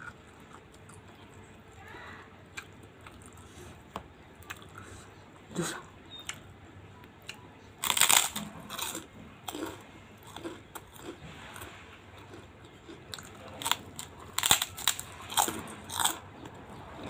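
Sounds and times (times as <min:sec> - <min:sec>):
chewing crunches: 0:00.0 - 0:01.4, 0:02.5 - 0:04.9, 0:07.2 - 0:17.0
cracker crunching: 0:07.3 - 0:17.0.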